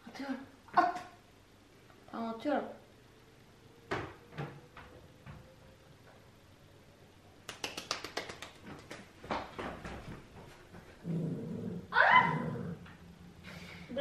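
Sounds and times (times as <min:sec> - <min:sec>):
dog growling: 0:11.0 - 0:12.9.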